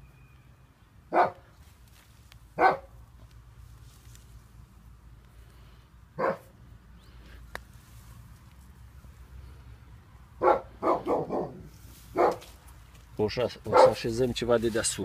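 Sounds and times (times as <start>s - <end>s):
dog barking: 1.1s - 1.4s, 2.6s - 2.9s, 6.2s - 6.5s, 10.4s - 12.5s, 13.7s - 14.0s.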